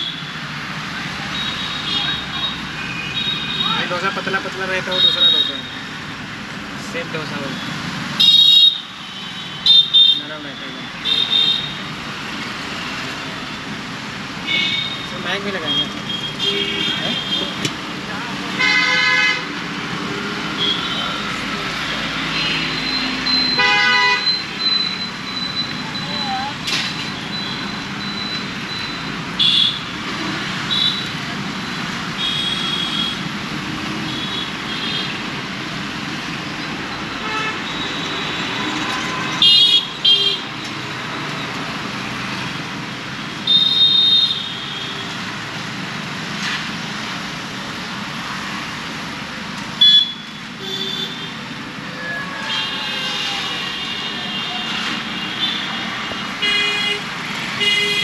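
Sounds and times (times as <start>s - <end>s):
road traffic passing: 0.0s - 58.0s
vehicle horns tooting: 14.5s - 17.7s, 18.6s - 19.5s, 22.4s - 24.7s, 37.1s - 40.5s, 49.8s - 51.4s, 52.0s - 58.0s.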